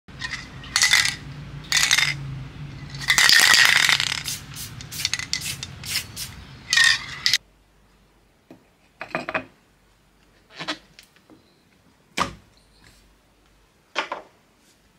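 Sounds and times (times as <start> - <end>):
spray can rattling: 0.7 - 2.2, 2.9 - 7.4.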